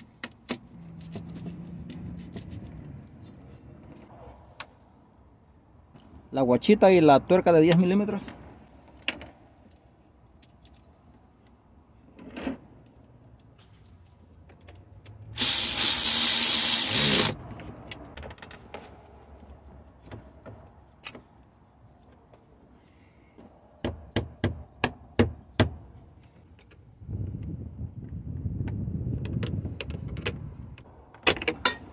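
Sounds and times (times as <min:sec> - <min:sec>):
power tool burst: 0:15.4 - 0:17.4.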